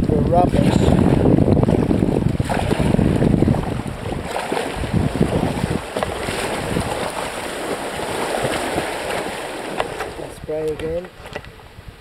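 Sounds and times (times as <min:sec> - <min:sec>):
wind buffeting microphone: 0:00.0 - 0:12.0
river water flowing: 0:00.6 - 0:10.5.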